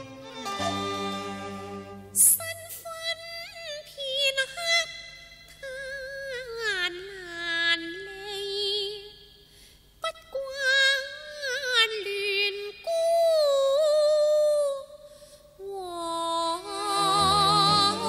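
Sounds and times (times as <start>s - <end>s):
woman singing opera: 5.6s - 9.1s, 10.0s - 14.9s, 15.6s - 18.0s.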